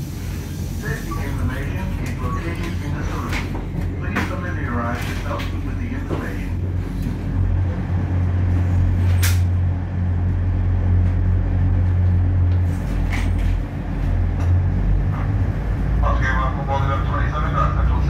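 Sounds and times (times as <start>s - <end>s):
train diesel engines droning: 0.0s - 18.0s.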